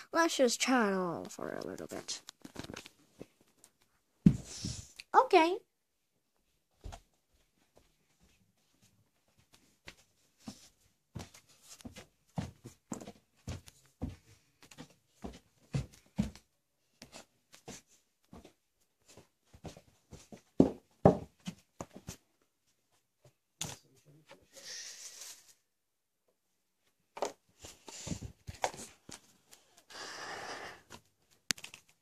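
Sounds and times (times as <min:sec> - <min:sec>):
dolls and props handled: 0:01.2 - 0:04.8, 0:27.1 - 0:29.9.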